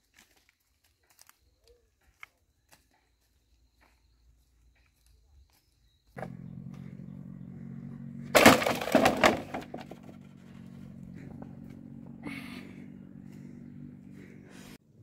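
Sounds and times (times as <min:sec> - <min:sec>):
bamboo pole clattering crash: 0:08.3 - 0:10.2
bamboo poles knocking: 0:08.4 - 0:10.2.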